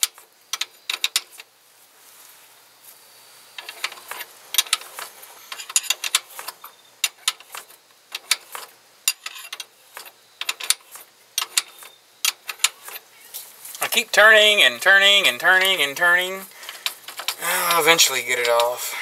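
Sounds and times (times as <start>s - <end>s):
ratchet wrench clicking: 16.6s - 18.8s.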